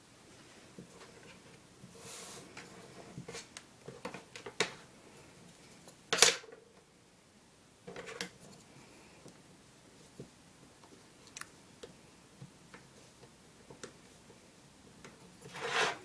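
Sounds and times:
ruler tapping and scraping on paper: 0:15.0 - 0:16.0.

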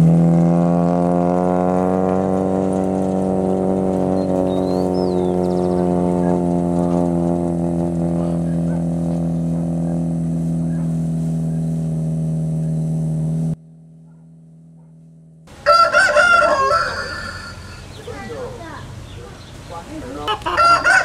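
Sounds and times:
rooster crowing: 0:15.5 - 0:18.0, 0:20.2 - 0:21.0.

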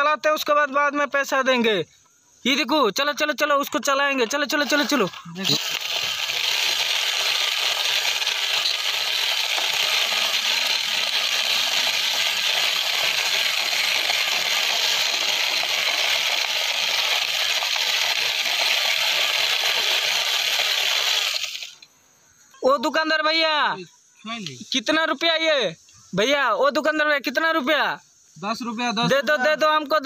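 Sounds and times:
toy truck wheels scraping concrete: 0:04.3 - 0:21.9.

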